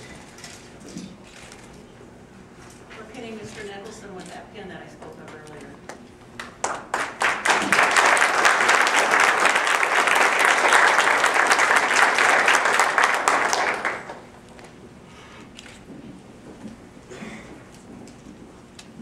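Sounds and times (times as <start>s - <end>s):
audience applauding: 6.4s - 14.4s.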